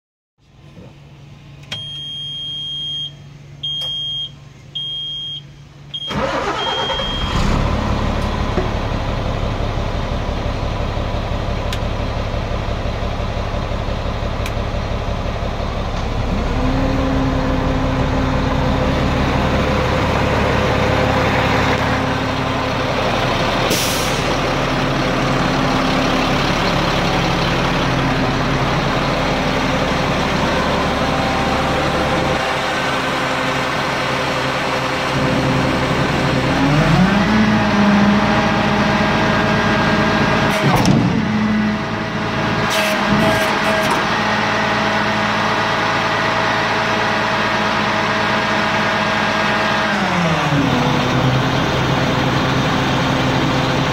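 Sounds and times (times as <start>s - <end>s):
diesel truck engine starting and idling: 0.6s - 53.9s
high warning beeps: 1.8s - 7.3s.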